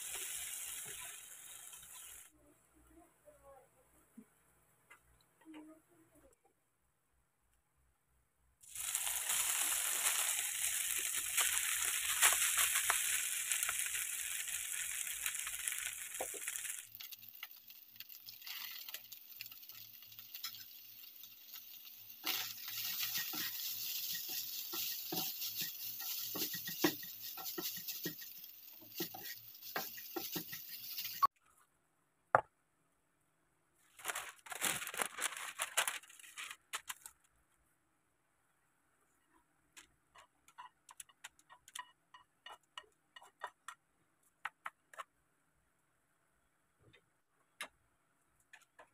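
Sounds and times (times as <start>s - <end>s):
rice sizzling in oil: 0.0s - 2.4s, 8.6s - 31.4s
spatula scraping a pan: 22.2s - 31.3s, 40.1s - 43.7s
parchment paper rustling: 33.8s - 37.3s.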